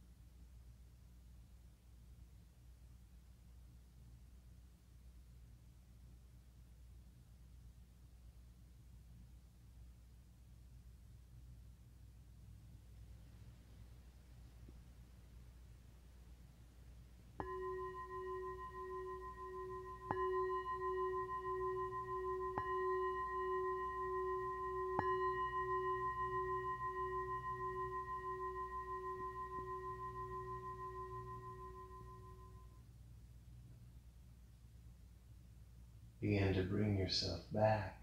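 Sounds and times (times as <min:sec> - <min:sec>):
singing bowl ringing: 0:17.3 - 0:32.8.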